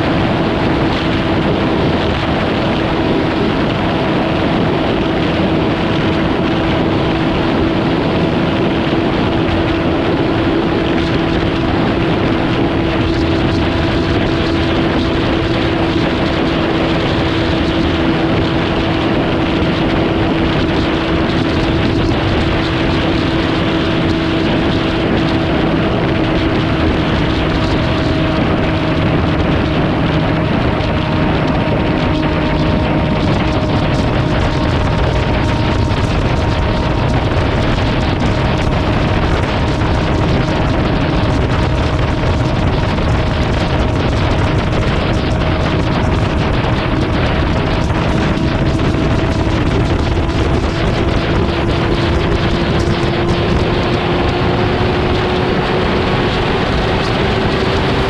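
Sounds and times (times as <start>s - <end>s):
even rushing noise: 0.0s - 58.0s
vehicle engine humming: 0.0s - 58.0s.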